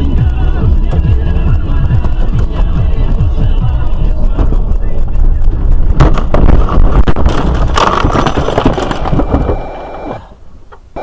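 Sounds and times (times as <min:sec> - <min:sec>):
rough vehicle noise: 0:00.0 - 0:11.0
sharp bangs: 0:01.8 - 0:10.2.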